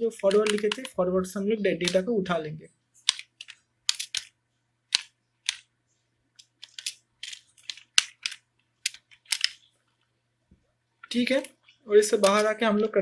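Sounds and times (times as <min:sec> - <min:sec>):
computer keyboard typing: 0:00.0 - 0:01.0, 0:01.8 - 0:02.1, 0:03.0 - 0:05.7, 0:06.4 - 0:09.7, 0:11.0 - 0:12.7.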